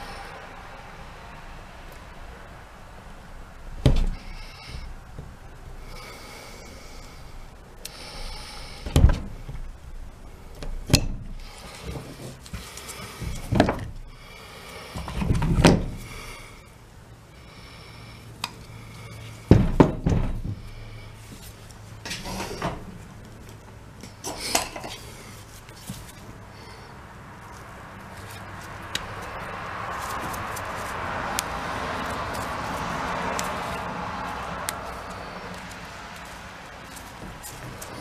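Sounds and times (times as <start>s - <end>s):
rustling of handled cord: 4.0s - 16.3s, 20.4s - 38.0s
knife cutting rubber cord: 29.9s - 33.9s.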